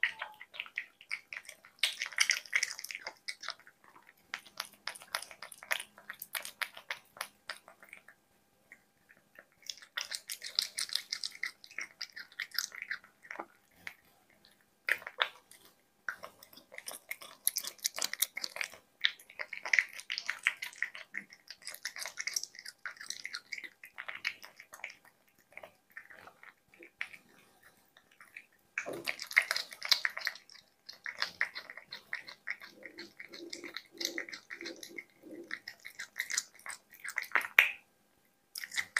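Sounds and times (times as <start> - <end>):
cat chewing food: 0.0 - 37.8, 38.5 - 38.9.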